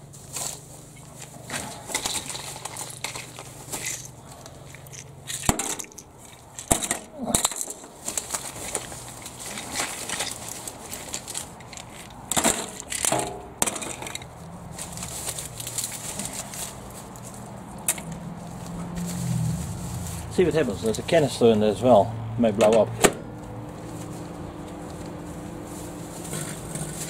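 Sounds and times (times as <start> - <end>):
plastic containers knocking and clattering: 1.5 - 4.1, 6.6 - 14.3.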